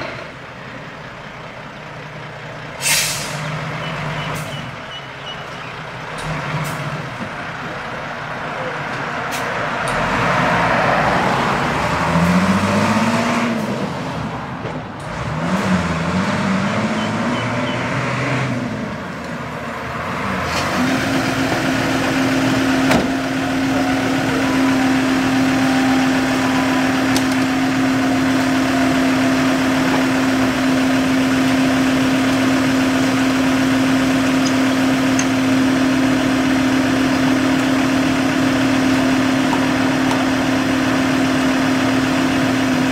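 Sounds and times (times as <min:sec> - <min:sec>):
truck engine revving: 0:00.0 - 0:42.9.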